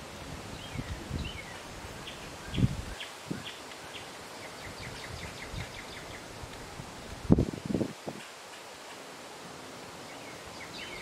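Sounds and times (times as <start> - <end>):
wind in the trees: 0.0 - 11.0
songbirds calling: 0.5 - 6.6, 9.9 - 11.0.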